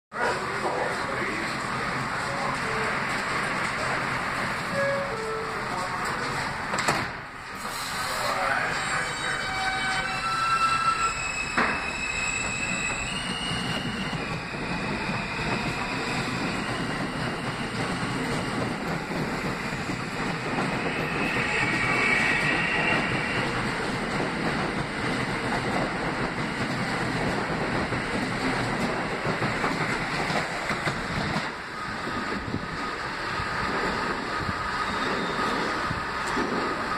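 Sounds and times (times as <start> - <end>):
train wheels rumbling on rails: 0.1 - 36.9
high wheel squeal: 7.6 - 24.1, 34.4 - 35.9.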